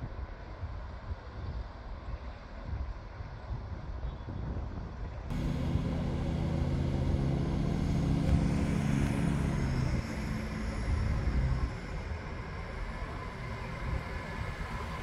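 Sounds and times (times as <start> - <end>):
train rumble: 4.7 - 15.0
diesel engine note: 5.3 - 15.0.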